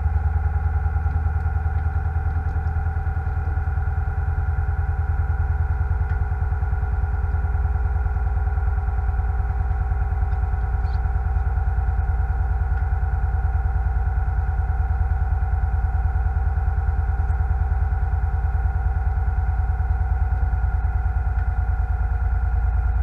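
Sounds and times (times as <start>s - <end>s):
boat engine drone: 0.0s - 23.0s
steady engine whine: 0.0s - 23.0s.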